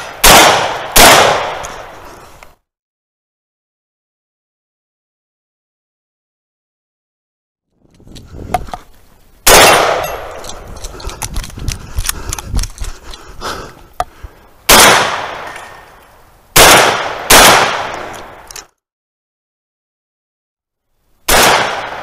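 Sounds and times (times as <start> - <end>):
shotgun shots with echo: 0.0 - 1.7, 9.5 - 10.3, 14.7 - 15.6, 16.6 - 18.1, 21.3 - 22.0
gun handling clicks and rustling: 7.8 - 9.1, 10.0 - 13.4, 17.9 - 18.8.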